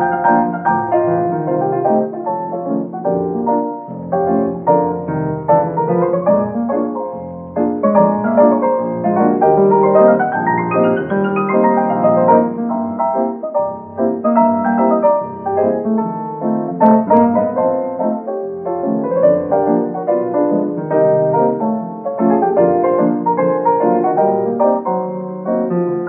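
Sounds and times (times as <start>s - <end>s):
solo piano melody: 0.0s - 26.0s.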